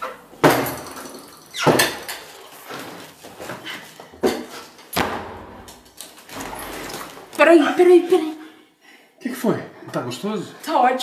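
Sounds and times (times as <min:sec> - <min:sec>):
sharp thumps and knocks: 0:04.9 - 0:07.2.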